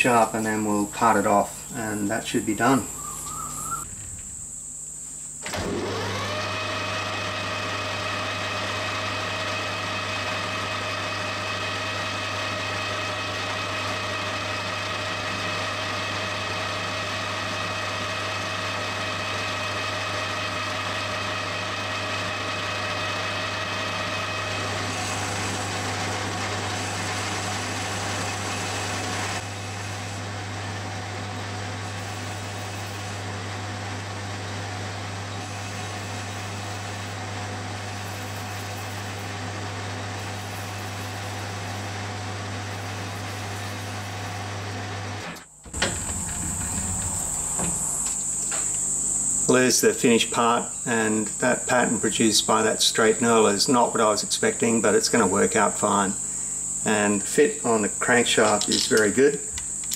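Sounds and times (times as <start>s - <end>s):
metal lathe whine: 0.0s - 59.9s
low hum: 2.8s - 6.0s, 45.4s - 48.8s.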